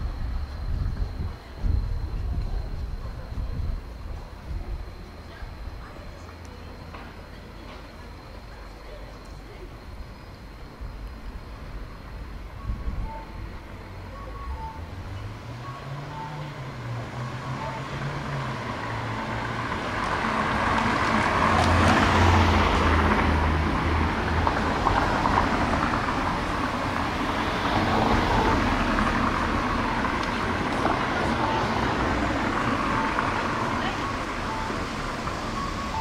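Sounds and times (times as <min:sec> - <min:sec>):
cars driving past: 0:13.8 - 0:36.0.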